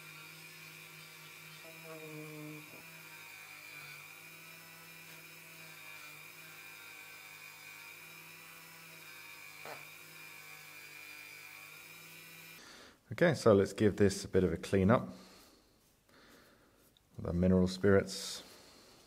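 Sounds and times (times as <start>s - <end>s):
rotary tool whining: 0.0s - 12.6s.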